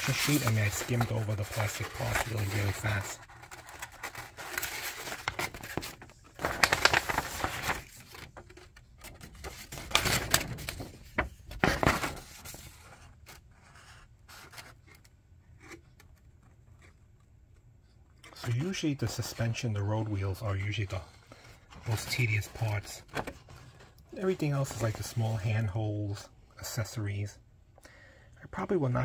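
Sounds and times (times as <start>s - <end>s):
paper rustling and crinkling: 0.0s - 15.0s, 18.2s - 25.8s.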